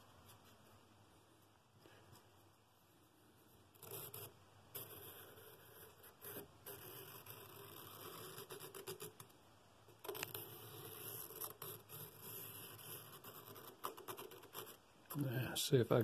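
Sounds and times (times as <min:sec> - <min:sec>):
pencil scratching on paper: 0:03.8 - 0:09.3, 0:10.0 - 0:14.8.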